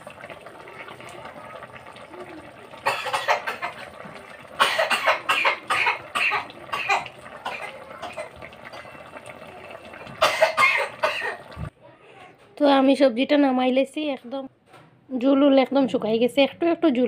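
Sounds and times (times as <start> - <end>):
person coughing: 2.8 - 3.8, 4.6 - 8.3, 10.2 - 11.5.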